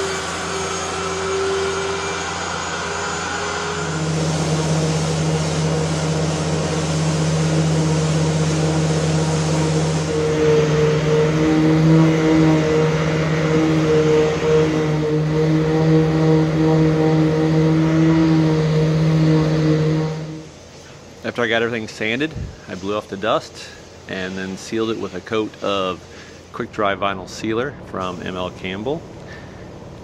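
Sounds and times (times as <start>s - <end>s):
orbital sander running: 0.0s - 20.6s
dust extractor drawing: 0.0s - 29.5s.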